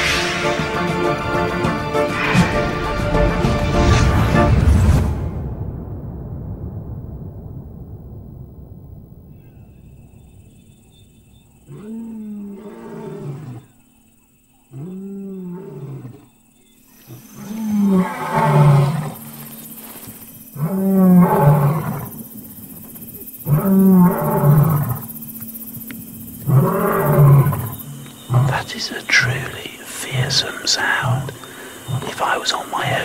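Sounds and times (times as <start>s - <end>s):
lion roaring: 11.7s - 13.7s, 17.1s - 19.2s, 20.5s - 22.2s, 23.4s - 25.1s, 26.4s - 29.3s.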